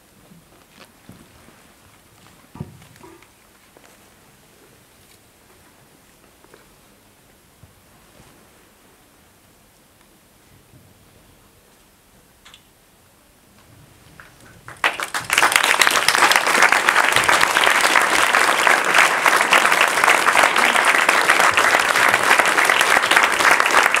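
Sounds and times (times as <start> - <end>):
audience applause: 14.2 - 24.0.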